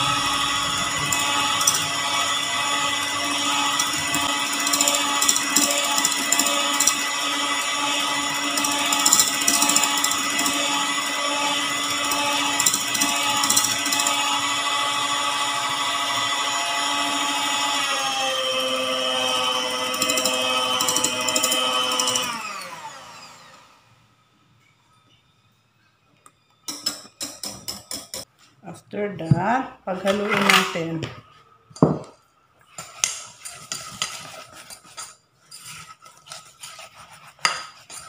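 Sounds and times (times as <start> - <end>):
electric hand mixer running: 0.0 - 24.0.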